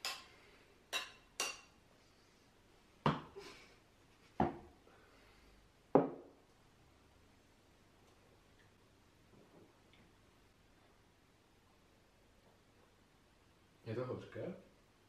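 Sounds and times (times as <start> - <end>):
glasses clinking: 0.9 - 1.7.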